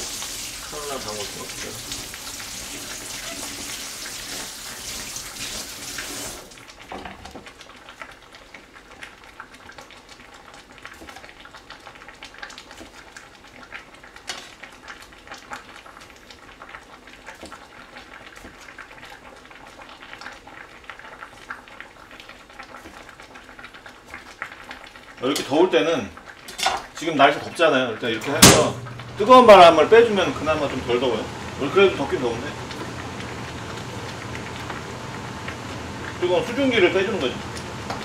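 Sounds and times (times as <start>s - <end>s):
faint steady hiss: 0.0s - 3.9s
kitchen tap running: 0.0s - 6.7s, 26.6s - 38.0s.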